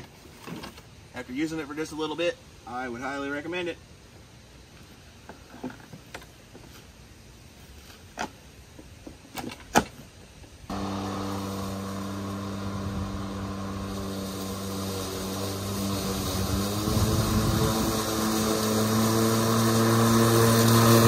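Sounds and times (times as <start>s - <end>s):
electric mower running: 10.7s - 21.0s.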